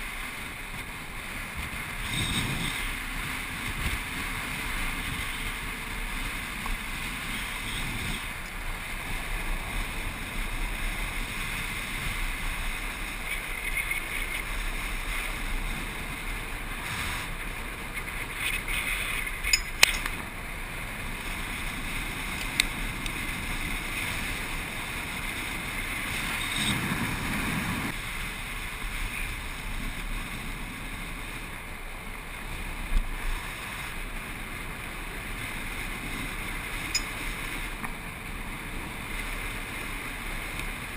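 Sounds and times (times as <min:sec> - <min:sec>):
wheels rolling hiss and rumble: 0:00.0 - 0:40.9
wind rushing over microphone: 0:00.0 - 0:40.9
sharp clicks and knocks: 0:19.5 - 0:20.2.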